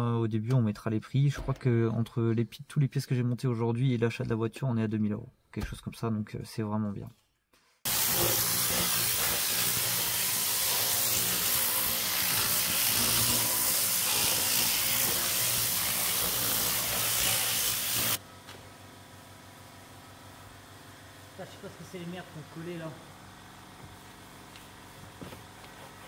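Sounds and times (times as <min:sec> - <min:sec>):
pressurised cleaning jet hissing: 0:07.9 - 0:18.2.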